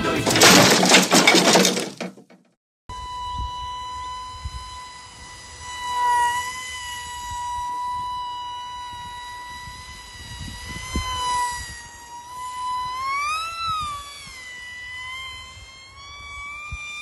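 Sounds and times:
wind rumble on microphone: 2.9 - 5.7, 7.1 - 12.0, 12.6 - 17.0
small motor propeller whine: 2.9 - 17.0.

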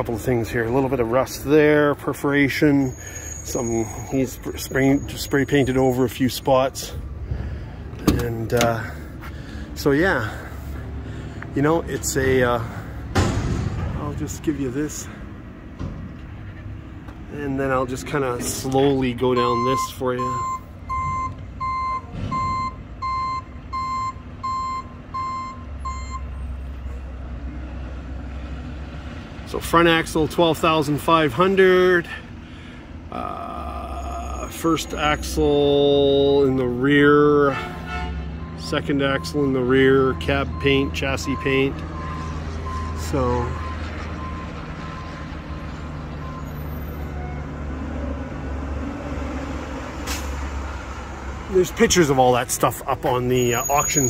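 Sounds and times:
low engine rumble: 0.0 - 54.0
reversing alarm beeping: 2.8 - 6.0, 19.3 - 26.4, 38.4 - 45.2, 46.2 - 47.6, 53.5 - 54.0.

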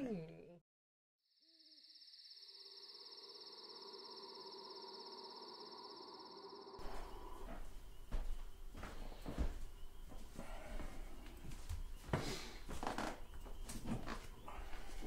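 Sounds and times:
crickets chirring: 1.3 - 15.0
low drone: 2.5 - 8.1
noisy ambience: 6.8 - 12.8.

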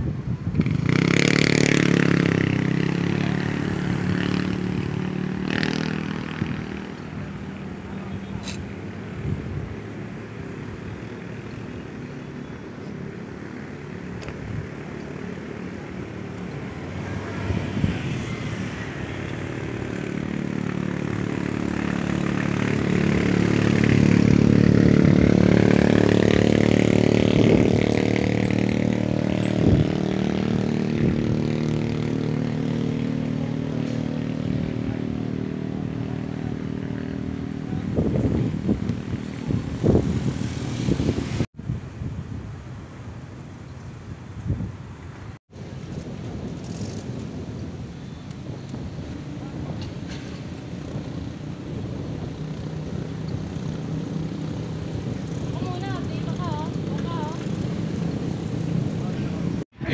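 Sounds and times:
engine passing by: 0.5 - 41.5, 45.3 - 59.9.

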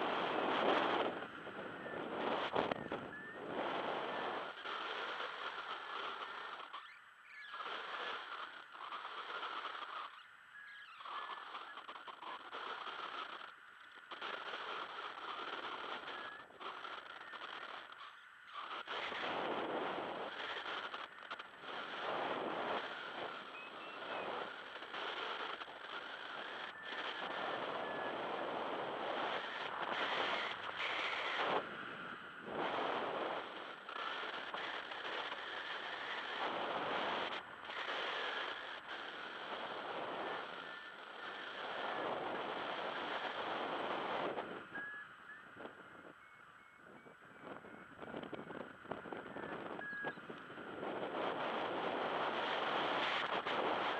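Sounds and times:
wind rushing over microphone: 0.0 - 6.8, 11.0 - 53.9.

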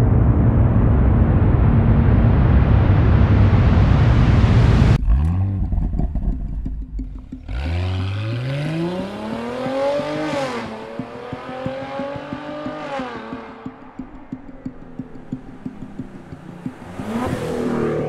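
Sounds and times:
car engine revving and accelerating: 7.4 - 13.8, 16.4 - 18.0.

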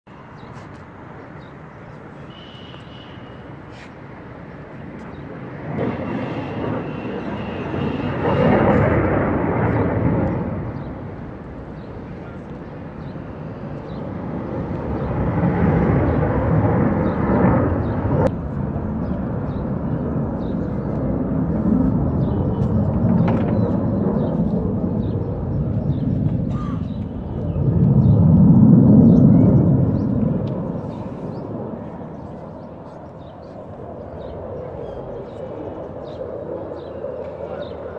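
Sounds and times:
fighter jet rushing noise: 5.2 - 32.9.

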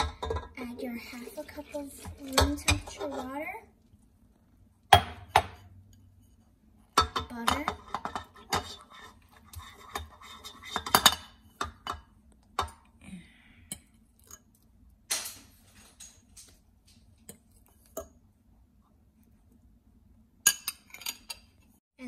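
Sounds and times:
metal fork scraping ceramic bowl: 2.2 - 3.4, 7.6 - 11.8.

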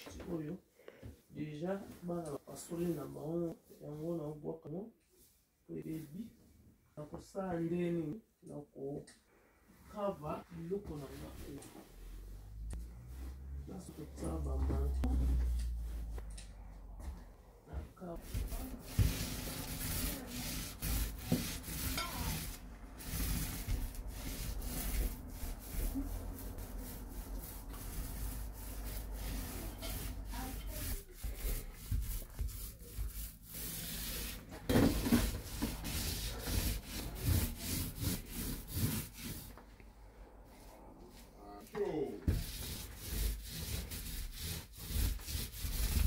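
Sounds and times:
paintbrush strokes: 9.7 - 39.8, 40.4 - 46.0.

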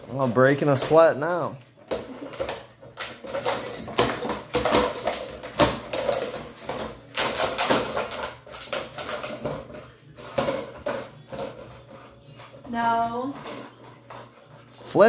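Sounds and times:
plastic toy clattering on floor: 1.8 - 11.7.

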